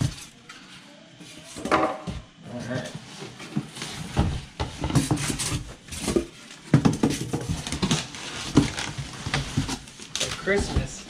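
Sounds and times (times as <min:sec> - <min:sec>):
packaging rustling and knocking: 0:03.4 - 0:11.0
plastic wrap crinkling: 0:05.3 - 0:11.0.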